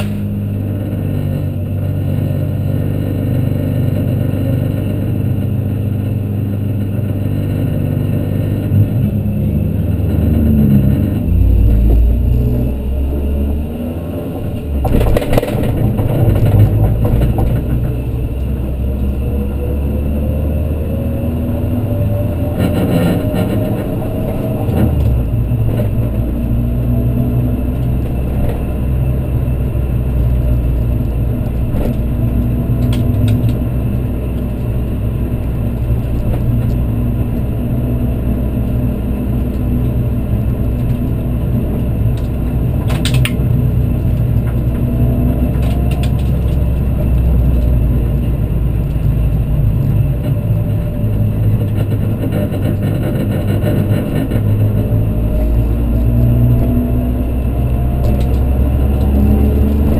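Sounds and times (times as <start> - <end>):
car engine running steadily: 0.0 - 59.9
sharp clatter: 14.2 - 18.5, 45.4 - 56.1.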